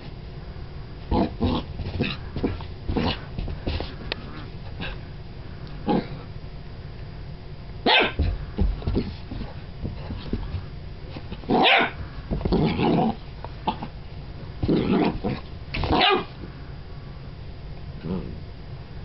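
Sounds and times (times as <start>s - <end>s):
puppy barking: 7.8s - 8.2s, 11.5s - 12.0s, 15.9s - 16.3s.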